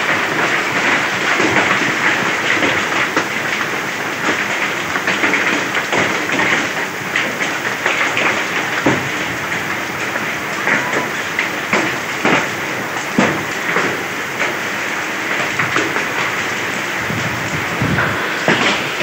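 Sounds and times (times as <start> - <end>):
hail clattering: 0.0 - 19.0
heavy rain hissing: 0.0 - 19.0.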